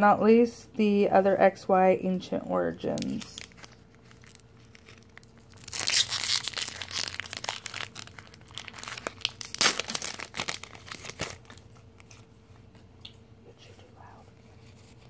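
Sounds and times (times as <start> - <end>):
foil wrapper tearing and crinkling: 2.9 - 12.2.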